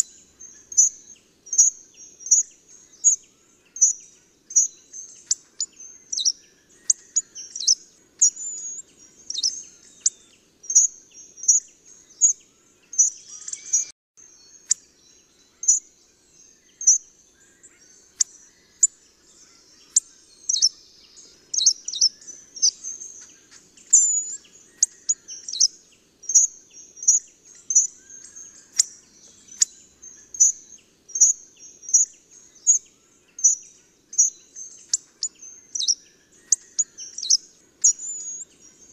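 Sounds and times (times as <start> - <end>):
hawfinch calling: 3.8 - 11.6, 19.4 - 20.7, 21.5 - 23.2, 34.2 - 38.5.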